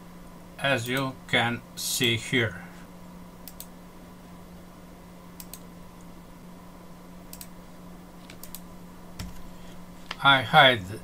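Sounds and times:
low electrical hum: 0:00.0 - 0:11.0
computer mouse clicking: 0:03.4 - 0:03.7, 0:05.4 - 0:05.7, 0:07.3 - 0:07.5, 0:08.2 - 0:08.6.

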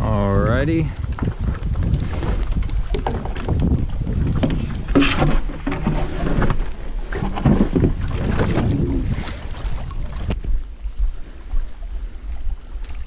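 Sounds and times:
wind on microphone: 0:00.0 - 0:13.0
board knocking and scraping: 0:02.6 - 0:08.8.

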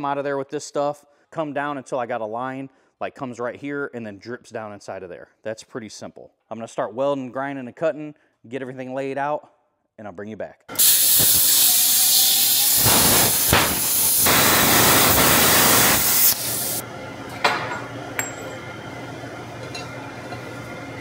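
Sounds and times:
plasma cutter hissing: 0:10.7 - 0:16.8.

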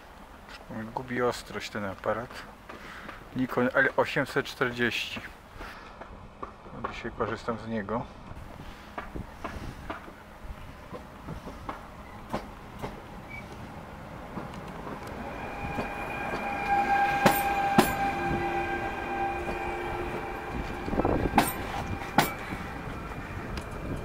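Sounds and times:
wheels clicking over rail joints: 0:05.0 - 0:18.1
electric train whine: 0:10.0 - 0:24.0.

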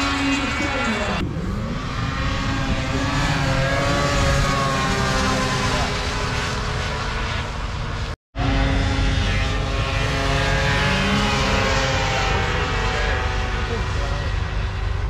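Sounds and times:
snowmobile engines whining: 0:00.0 - 0:15.0.

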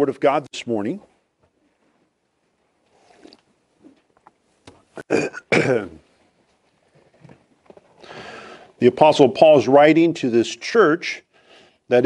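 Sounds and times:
man clearing his throat: 0:05.0 - 0:06.1.

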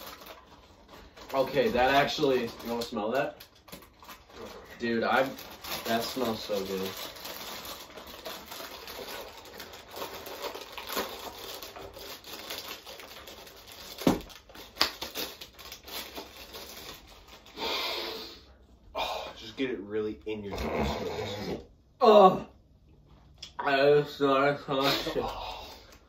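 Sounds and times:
packaging crinkling and tearing: 0:00.0 - 0:17.6.

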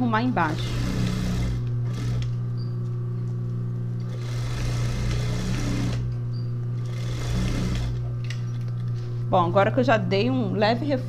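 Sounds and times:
motor hum: 0:00.0 - 0:11.0
sewing machine stitching: 0:00.2 - 0:02.4, 0:04.0 - 0:06.1, 0:06.8 - 0:08.1.

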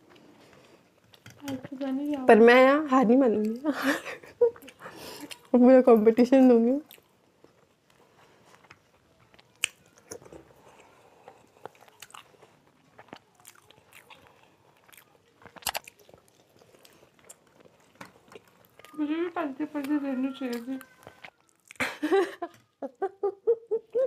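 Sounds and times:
chewing and mouth sounds: 0:04.5 - 0:06.0, 0:06.8 - 0:21.9.

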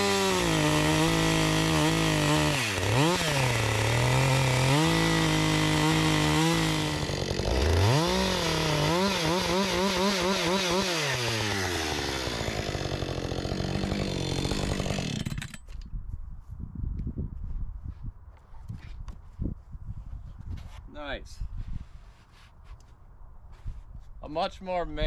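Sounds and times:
chainsaw cutting wood: 0:00.0 - 0:15.8.

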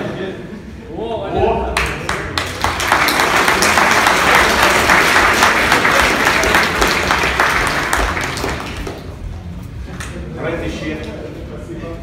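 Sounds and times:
audience applauding: 0:01.8 - 0:09.2.

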